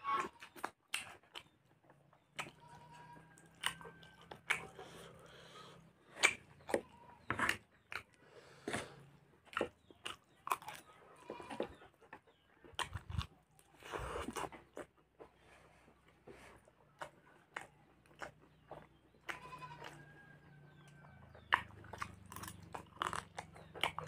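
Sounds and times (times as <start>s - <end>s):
wet chewing: 0.2s - 24.0s
lip smacks: 3.4s - 6.9s, 11.7s - 15.3s, 20.7s - 24.0s.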